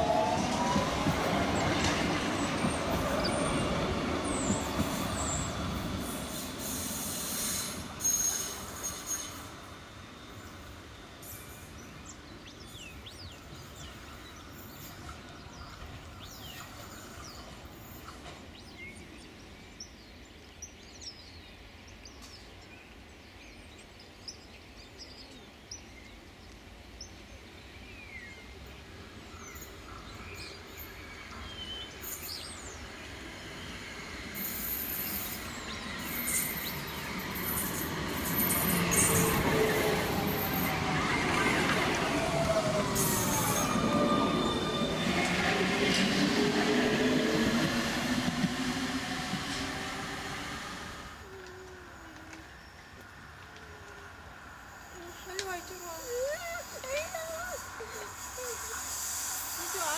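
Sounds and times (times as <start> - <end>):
tram approaching and passing: 0.0 - 59.9
birds chirping: 10.2 - 51.4.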